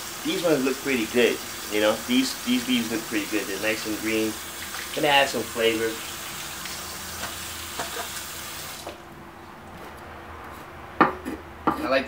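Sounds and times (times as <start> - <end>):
faucet water running: 0.0 - 9.0
knife chopping on wooden board: 10.5 - 11.8.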